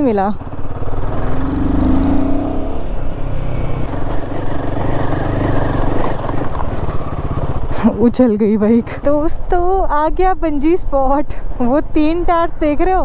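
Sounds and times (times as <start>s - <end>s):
motorbike engine accelerating: 0.0s - 8.2s
wind and road noise: 0.0s - 13.0s.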